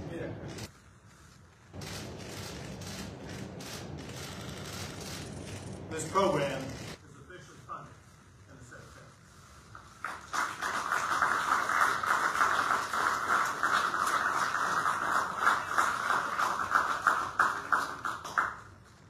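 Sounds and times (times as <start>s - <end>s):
audience applauding: 10.0s - 19.0s.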